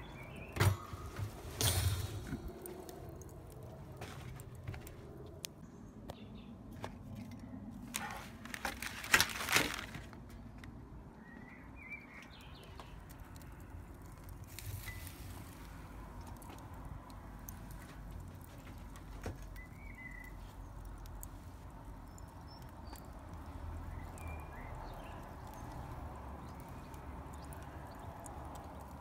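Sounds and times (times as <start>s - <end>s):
bird chirp: 0.0s - 1.1s, 5.6s - 6.6s, 11.2s - 13.6s, 19.5s - 20.9s, 21.9s - 29.0s
wood fire crackling: 0.0s - 5.6s, 7.8s - 10.4s, 11.9s - 29.0s.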